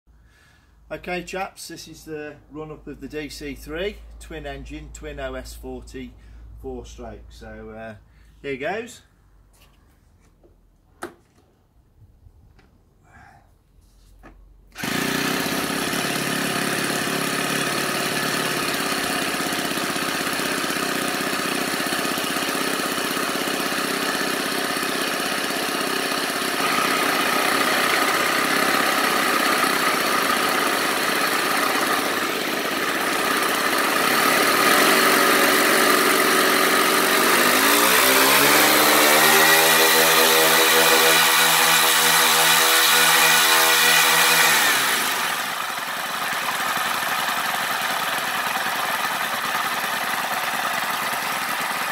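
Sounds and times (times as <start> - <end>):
model airplane engines running: 22.7 - 51.9.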